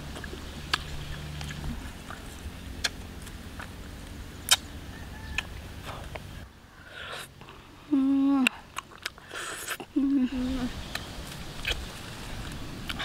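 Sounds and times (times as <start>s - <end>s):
clicks and snaps picking fruit: 0.1s - 4.7s, 5.3s - 6.3s, 8.4s - 9.9s, 10.8s - 13.0s.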